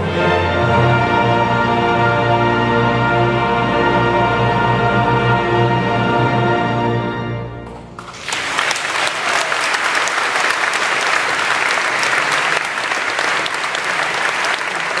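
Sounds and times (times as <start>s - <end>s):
audience applause: 7.9s - 15.0s.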